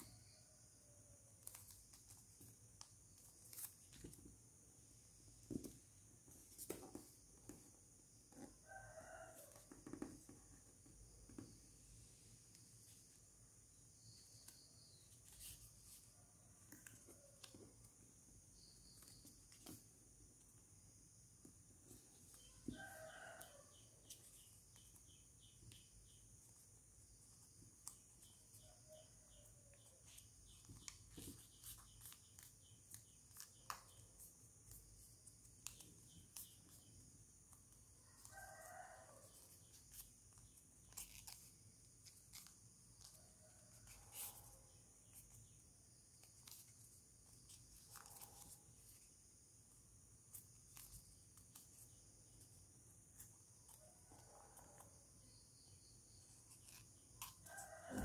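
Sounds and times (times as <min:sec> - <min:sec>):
paper being creased: 0:40.9 - 0:43.2.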